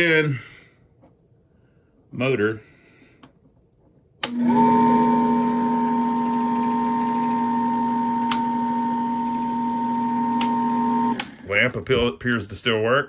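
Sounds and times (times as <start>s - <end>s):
projector motor humming: 4.2s - 11.8s.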